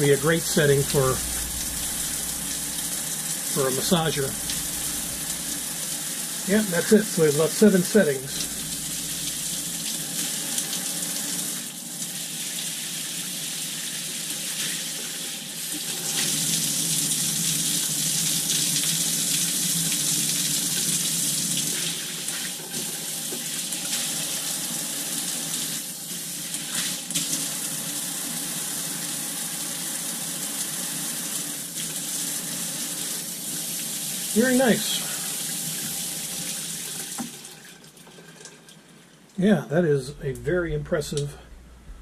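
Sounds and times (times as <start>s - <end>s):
water spraying from shower head: 0.0s - 12.7s.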